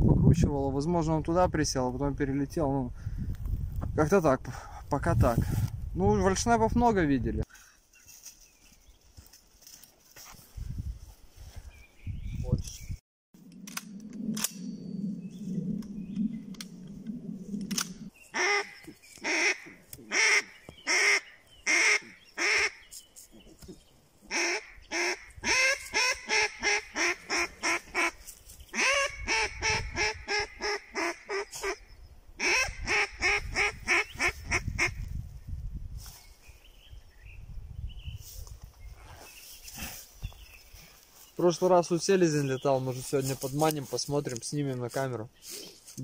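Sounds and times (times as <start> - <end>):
geese honking: 18.3 - 22.8, 24.3 - 28.2.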